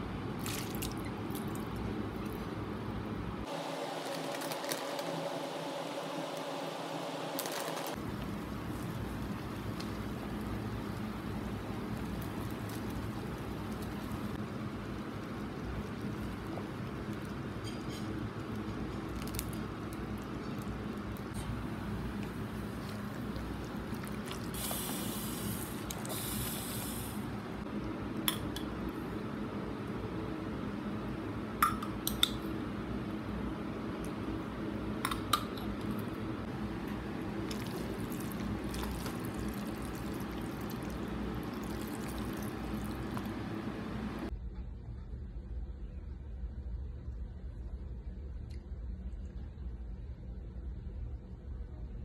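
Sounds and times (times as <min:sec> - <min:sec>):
steady background hum: 0:00.0 - 0:52.0
sauce squelching in pot: 0:22.2 - 0:26.6, 0:36.6 - 0:43.5.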